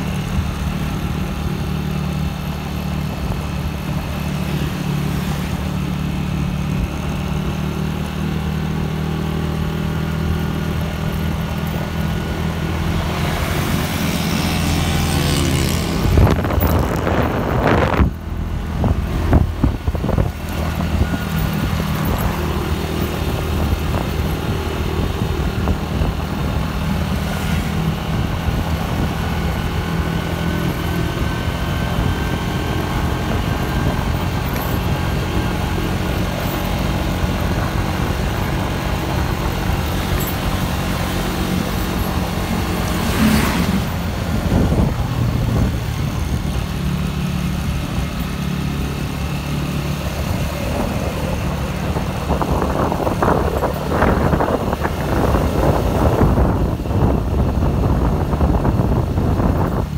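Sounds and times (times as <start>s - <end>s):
motorcycle engine running: 0.0s - 59.9s
road and wind noise: 0.0s - 59.9s
rush of noise: 31.7s - 59.9s.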